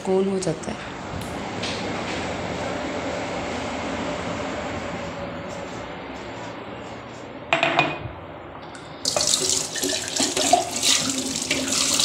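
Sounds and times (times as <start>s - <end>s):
tap water running into sink: 9.1s - 12.0s.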